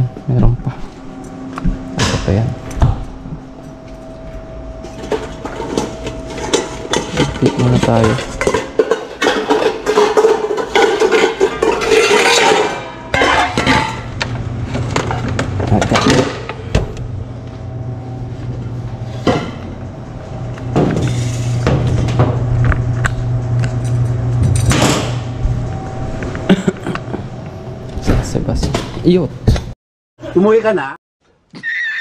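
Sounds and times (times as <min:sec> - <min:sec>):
low steady hum: 0:00.0 - 0:28.8
steel bowls clanking and scraping: 0:03.6 - 0:16.7.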